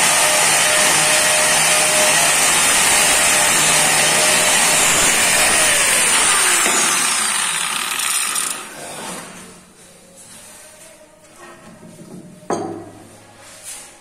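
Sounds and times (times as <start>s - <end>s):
angle grinder polishing stone: 0.0s - 8.8s.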